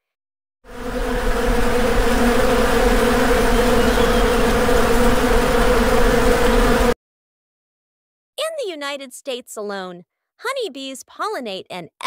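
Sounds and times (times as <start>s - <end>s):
honeybee buzzing: 0.7s - 7.0s.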